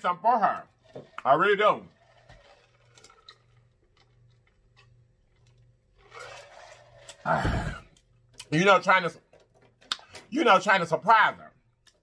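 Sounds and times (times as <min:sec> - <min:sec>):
man swallowing: 0:07.2 - 0:08.0.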